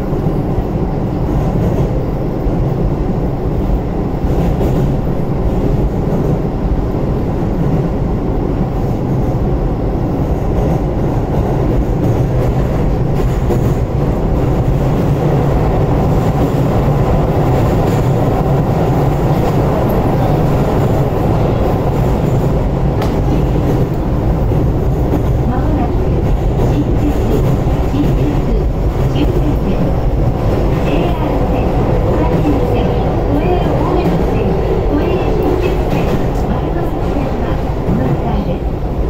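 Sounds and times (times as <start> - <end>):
train wheels rumbling on rail: 0.0 - 39.0.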